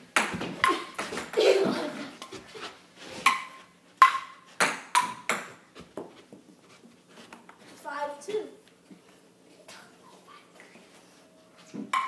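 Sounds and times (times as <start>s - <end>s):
ping-pong ball hits: 3.3s - 5.6s.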